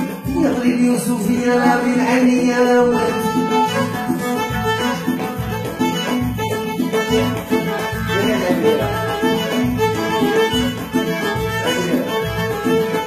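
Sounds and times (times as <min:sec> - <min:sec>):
bowed violins playing folk music: 0:02.7 - 0:13.0
steady low beat: 0:02.9 - 0:13.0.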